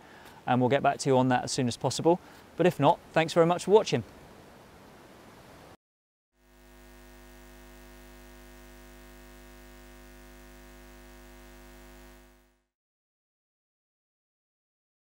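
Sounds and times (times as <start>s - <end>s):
electrical hum: 6.4s - 12.7s.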